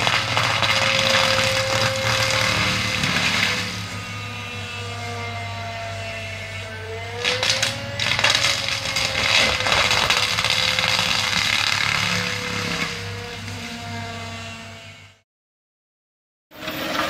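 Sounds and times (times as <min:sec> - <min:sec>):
wood shredding crackling and snapping: 0:00.0 - 0:04.1, 0:07.2 - 0:13.7
excavator engine hum: 0:00.0 - 0:15.2.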